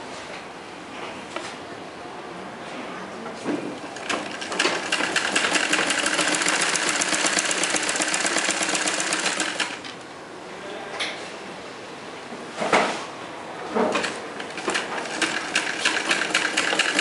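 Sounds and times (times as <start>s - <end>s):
sewing machine stitching: 4.0s - 9.9s, 13.9s - 17.0s.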